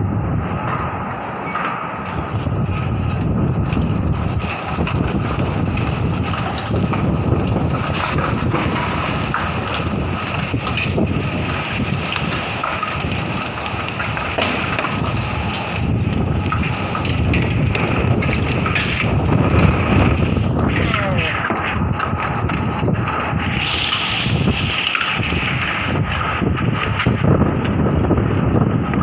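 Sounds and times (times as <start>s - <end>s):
strong wind buffeting microphone: 0.0s - 29.0s.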